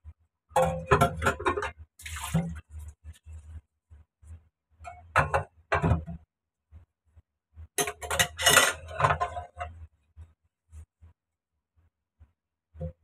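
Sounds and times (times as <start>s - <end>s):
plates and spoon clinking in sink: 0.6s - 2.6s, 7.8s - 9.7s
sponge scrubbing dishes: 0.6s - 3.6s.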